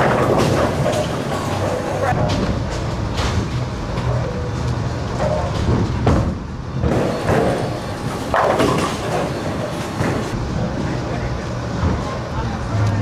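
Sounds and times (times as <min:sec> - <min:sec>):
bowling ball rolling on wooden lane: 0:00.0 - 0:02.5, 0:06.8 - 0:10.4
bowling pins clattering: 0:00.0 - 0:03.6, 0:05.2 - 0:10.4.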